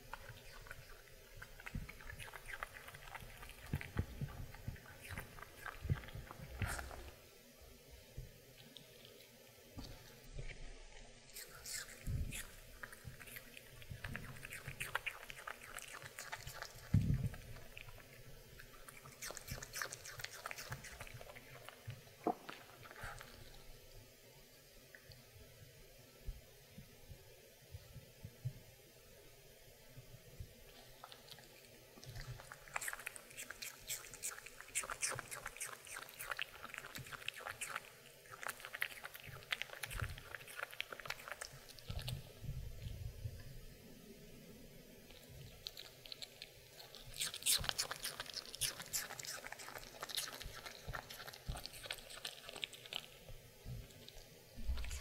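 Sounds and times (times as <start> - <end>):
dog chewing apple crunches: 11.5 - 23.5, 45.1 - 53.3, 53.9 - 55.0.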